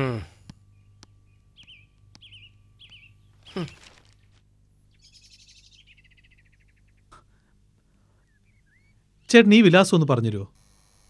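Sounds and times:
bird warbling chirp: 0.7s - 4.0s, 4.9s - 7.2s, 8.2s - 9.4s
bird rapid trilled notes: 0.8s - 4.2s, 4.8s - 7.1s.

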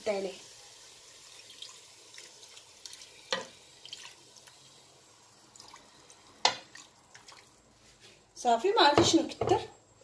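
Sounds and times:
water pouring and splashing: 0.1s - 7.8s.

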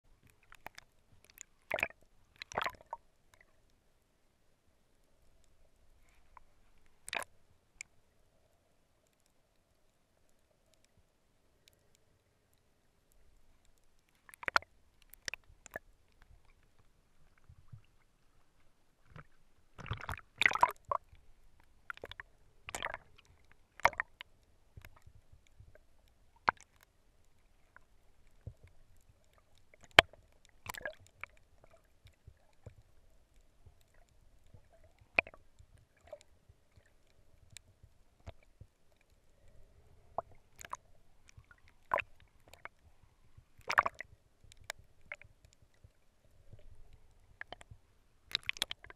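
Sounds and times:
faint steady hum: 0.0s - 48.9s
underwater clicks and knocks: 0.2s - 3.5s, 6.3s - 7.9s, 14.2s - 18.0s, 19.0s - 21.2s, 21.9s - 25.8s, 28.3s - 31.4s, 33.7s - 36.9s, 40.1s - 42.8s, 43.5s - 45.2s, 46.5s - 48.9s
water sloshing: 14.2s - 24.2s, 43.5s - 44.0s, 46.5s - 48.9s.

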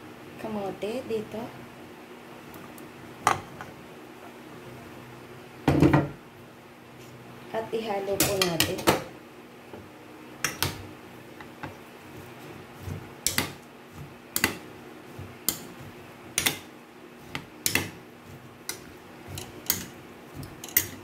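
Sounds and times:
metal spoon clinking against bowl: 18.7s - 21.0s.

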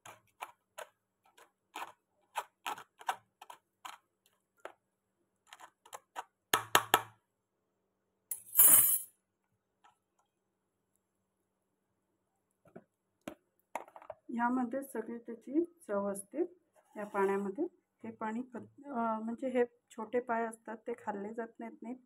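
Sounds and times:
harsh spoon scrape: 0.0s - 3.6s, 16.9s - 17.5s.

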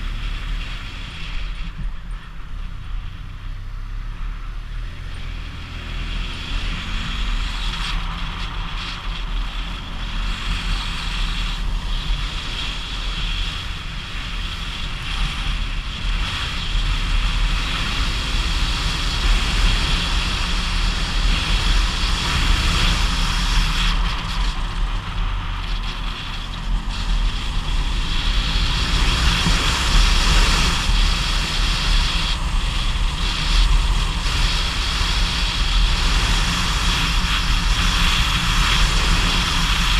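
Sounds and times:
motorcycle engine pulling uphill: 0.0s - 39.9s
wind rushing over microphone: 4.6s - 39.9s.

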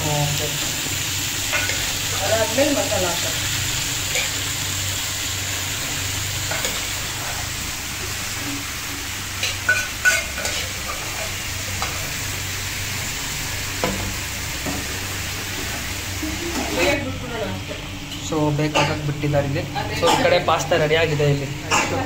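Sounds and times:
food sizzling in oil: 0.0s - 22.0s.

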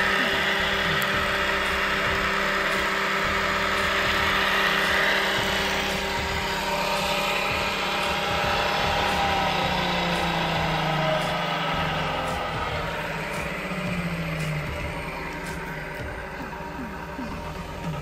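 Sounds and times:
transmission mechanical hum: 0.0s - 18.0s
whining tones: 0.0s - 18.0s.

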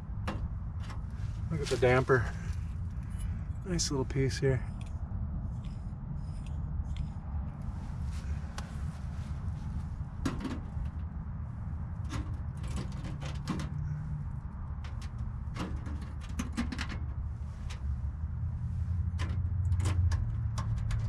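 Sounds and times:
low rumble: 0.0s - 12.8s.

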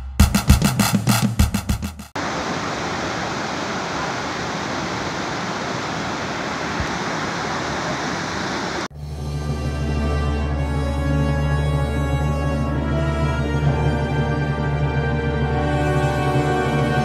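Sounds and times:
music: 0.0s - 2.1s, 8.9s - 17.0s
river rapid rushing over boulders: 2.2s - 8.9s.

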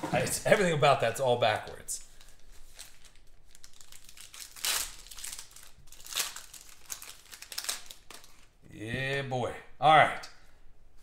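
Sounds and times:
foil wrapper crinkling: 2.0s - 8.6s
foil wrapper ripping: 2.2s - 8.5s.

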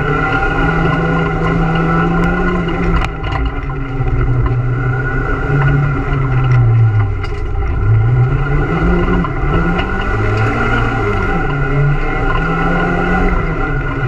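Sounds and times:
car engine revving through gears: 0.0s - 14.0s.

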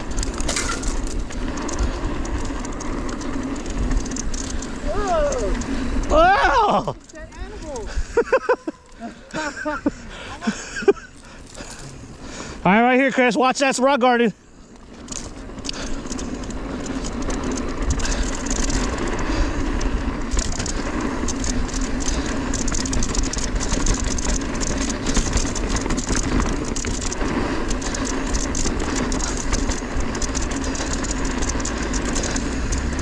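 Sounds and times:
bike frame rattling: 0.0s - 33.0s
bike tyres skittering over rock: 0.0s - 33.0s.

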